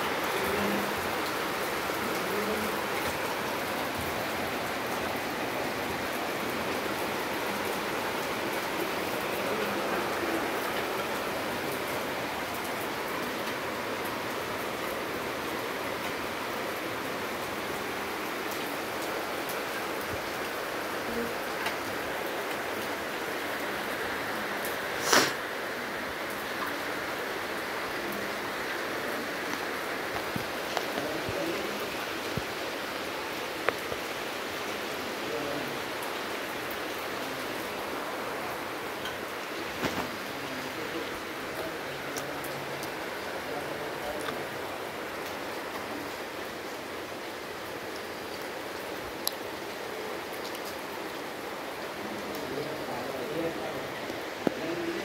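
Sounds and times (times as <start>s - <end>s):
steady background hiss: 0.0s - 55.0s
steady hiss: 22.5s - 47.8s
brief sharp noise: 25.0s - 25.4s.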